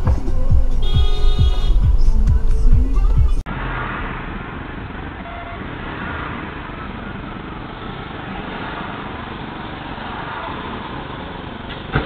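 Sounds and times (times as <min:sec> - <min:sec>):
car engine and traffic noise: 0:00.0 - 0:12.0.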